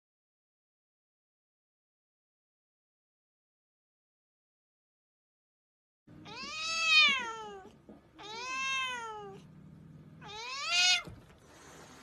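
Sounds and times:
cat yowling angrily: 0:06.2 - 0:09.4, 0:10.2 - 0:11.2.

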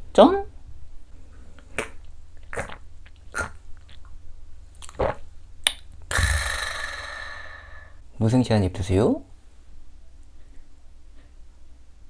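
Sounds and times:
man swallowing: 0:01.8 - 0:04.1, 0:04.8 - 0:07.9
breathy exhale: 0:06.1 - 0:08.0.

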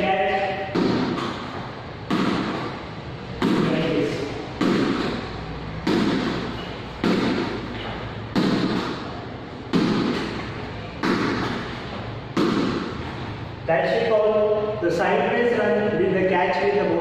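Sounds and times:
ball hitting wall echoing: 0:00.0 - 0:13.6.

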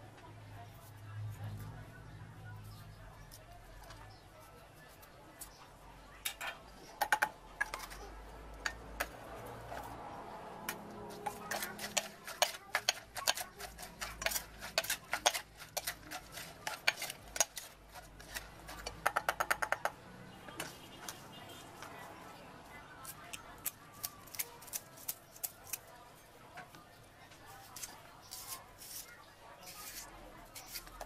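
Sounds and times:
pestle knocking in clay mortar: 0:11.2 - 0:20.0.

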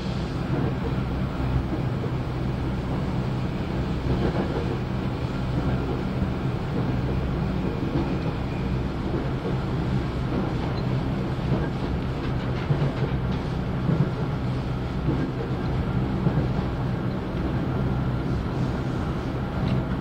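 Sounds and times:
train wheels rumbling on rails: 0:00.0 - 0:20.0
clacks over rail joints: 0:10.2 - 0:14.4, 0:15.0 - 0:17.6, 0:19.6 - 0:20.0.

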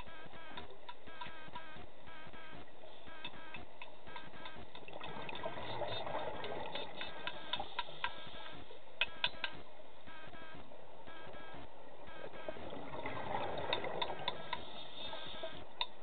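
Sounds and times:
sharp clicks: 0:00.0 - 0:05.6, 0:06.2 - 0:09.6.

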